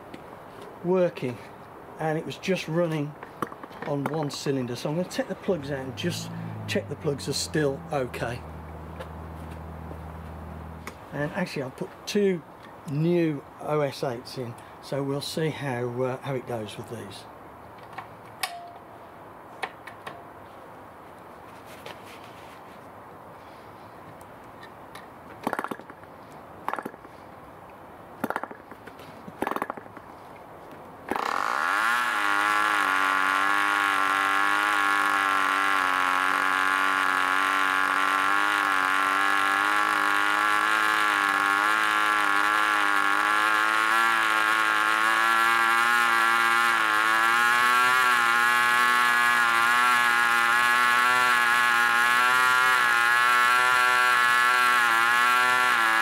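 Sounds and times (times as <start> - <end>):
model aircraft engine running: 5.5 - 11.0, 31.1 - 56.0.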